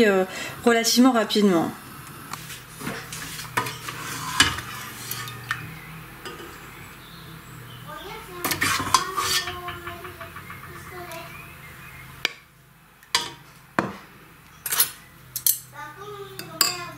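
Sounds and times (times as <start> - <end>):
ceramic bowls and spoons clinking: 3.5 - 6.8, 8.4 - 11.6, 16.4 - 16.9.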